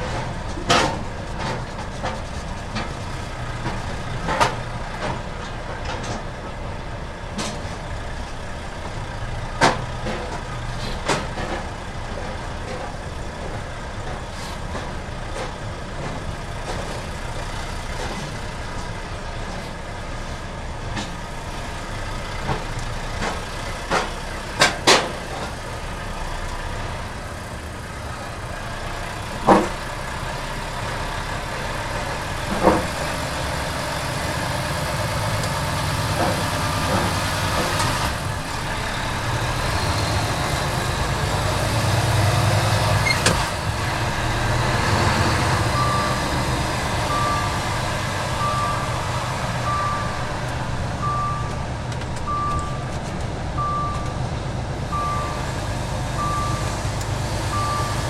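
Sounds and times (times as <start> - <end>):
truck engine running: 0.0 - 58.0
wheels clunking over metal joints: 0.0 - 58.0
reversing alarm beeping: 44.2 - 51.6, 52.3 - 53.0, 53.6 - 54.3, 54.9 - 58.0.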